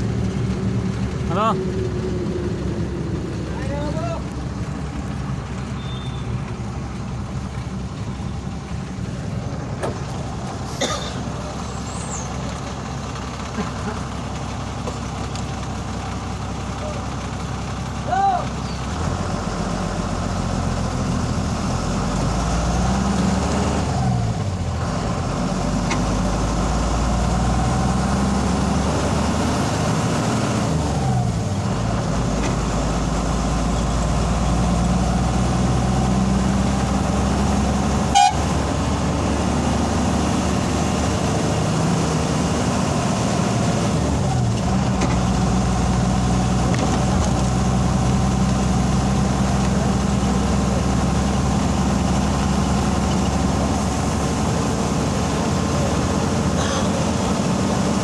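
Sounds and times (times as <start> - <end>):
vehicle running on highway: 0.0 - 58.0
short horn toot: 5.8 - 6.3, 38.1 - 38.5.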